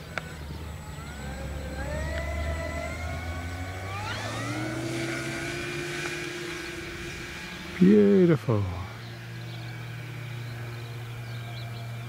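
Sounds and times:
electric motors whining: 0.0s - 12.0s.

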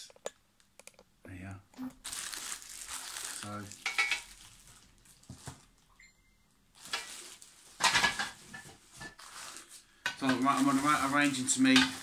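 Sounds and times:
plastic bags crinkling: 2.0s - 5.9s, 6.7s - 12.0s.

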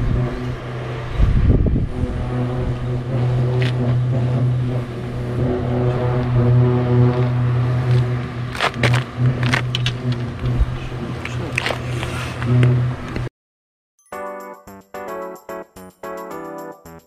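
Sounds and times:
boat engine idling: 2.0s - 13.3s
sharp clicks and knocks: 7.9s - 13.3s.

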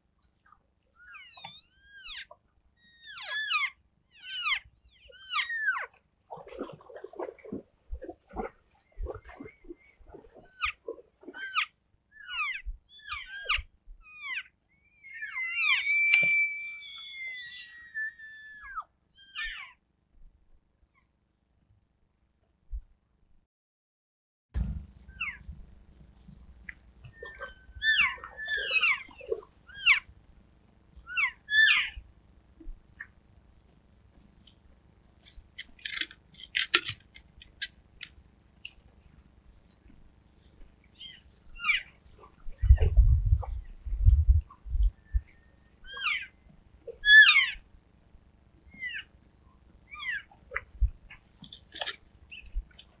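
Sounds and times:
elk squealing calls: 1.0s - 6.0s, 9.1s - 19.7s, 27.1s - 30.1s, 31.1s - 32.0s, 45.9s - 47.6s.

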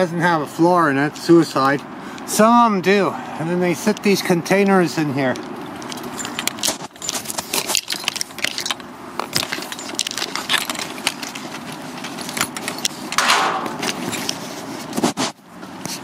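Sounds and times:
rattling of carried gear: 3.4s - 16.0s
footsteps on gravel: 5.2s - 15.4s.

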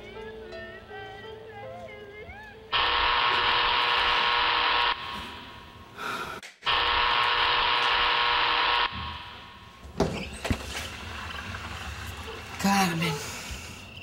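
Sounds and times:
electric door buzzer: 2.7s - 5.8s, 6.6s - 9.9s.

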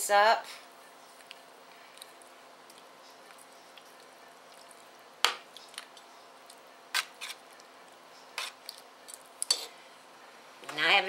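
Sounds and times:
spoon stirring thick soup: 2.0s - 9.8s.

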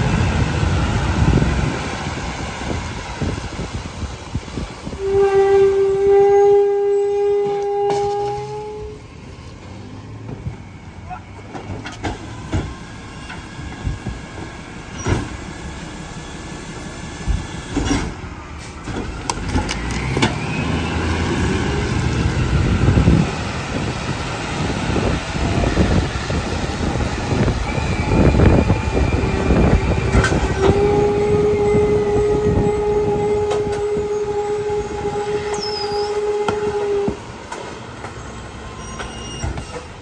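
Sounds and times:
truck pulling away whine: 0.0s - 5.0s, 8.0s - 40.0s
hydraulic whine: 10.2s - 37.4s
garbage truck engine revving: 16.6s - 36.9s.

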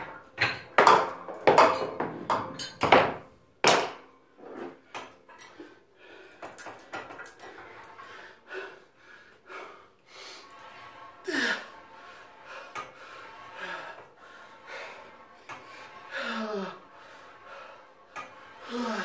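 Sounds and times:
metal hardware knocking: 0.4s - 4.0s
metal rattling and rustling: 6.2s - 8.1s.

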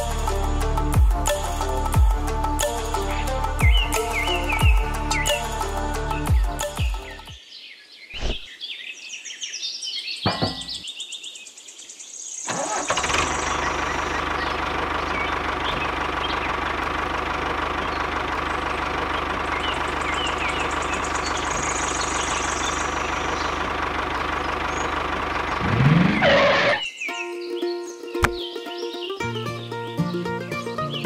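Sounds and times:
tractor engine running: 12.5s - 26.8s.

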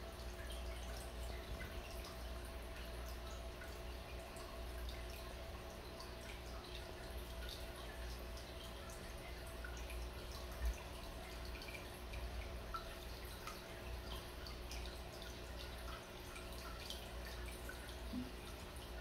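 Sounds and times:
aquarium pump hum: 0.0s - 19.0s
water trickling and dripping: 0.0s - 19.0s.

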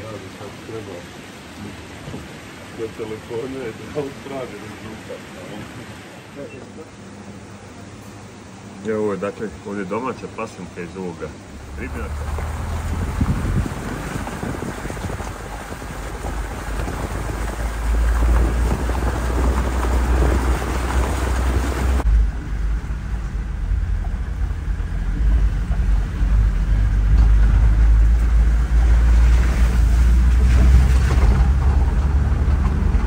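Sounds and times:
wind and road hiss: 0.0s - 33.0s
engine and tyre rumble: 11.4s - 33.0s.

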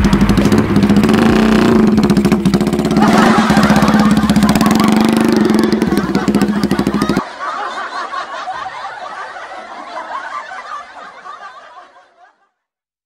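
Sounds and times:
people laughing together: 2.8s - 12.7s.

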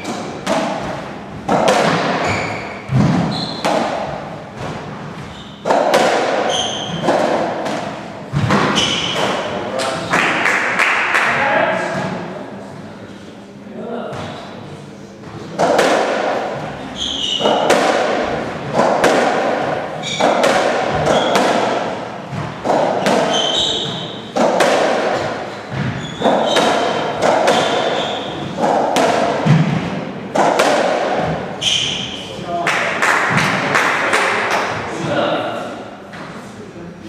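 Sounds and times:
ball hitting rackets and walls: 0.0s - 12.3s, 14.0s - 14.6s, 15.2s - 35.2s
shoes squeaking on wooden floor: 2.2s - 3.7s, 5.2s - 5.6s, 6.4s - 7.1s, 8.4s - 9.3s, 16.6s - 17.7s, 20.0s - 20.4s, 21.0s - 21.4s, 22.3s - 24.3s, 25.5s - 28.6s.

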